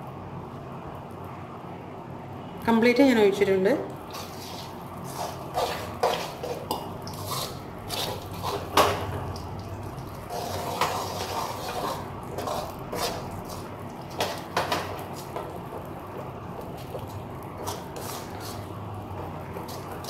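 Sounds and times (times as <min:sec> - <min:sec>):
metal spoon scraping thick mixture: 0:04.1 - 0:20.0.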